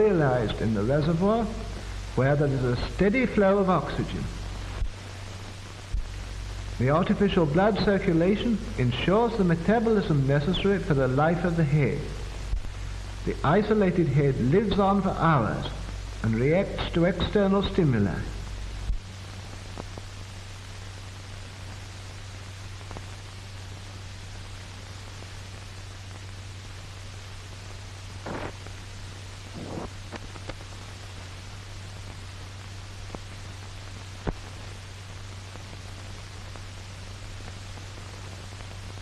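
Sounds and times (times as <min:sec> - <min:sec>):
film soundtrack hiss and hum: 0:00.0 - 0:39.0
scratchy noises: 0:28.2 - 0:28.6, 0:29.5 - 0:30.0.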